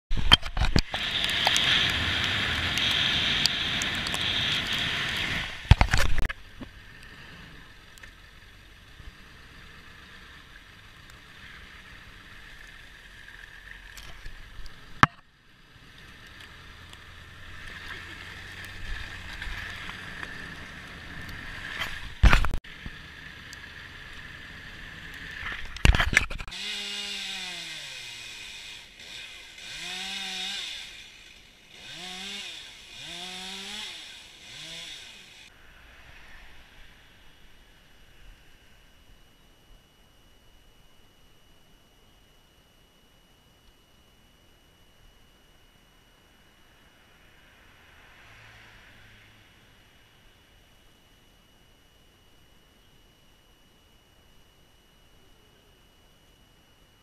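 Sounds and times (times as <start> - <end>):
road and tyre noise: 0.1 - 26.6, 33.9 - 38.9, 46.6 - 51.0
chainsaw winding down: 0.7 - 6.2, 26.4 - 35.5.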